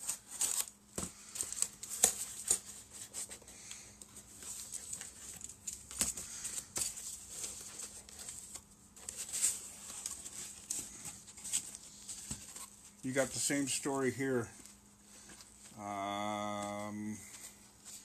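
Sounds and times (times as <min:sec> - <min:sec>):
cardboard scraping and rustling: 0:04.2 - 0:12.9.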